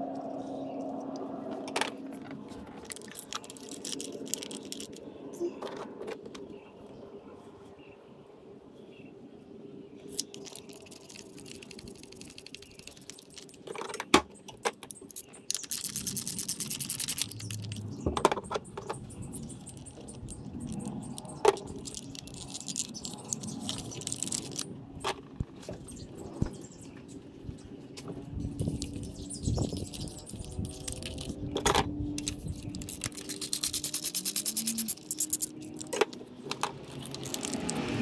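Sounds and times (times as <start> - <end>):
ratchet clicking: 32.2 - 35.9
metal tools clinking and scraping: 32.2 - 37.7.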